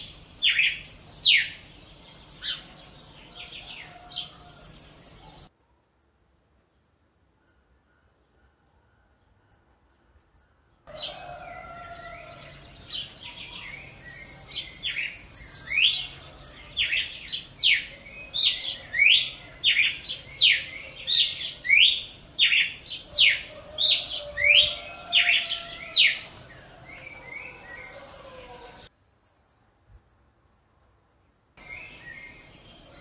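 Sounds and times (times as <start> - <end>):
bird singing whistled notes: 0.0 - 2.9, 13.0 - 26.2, 31.6 - 33.0.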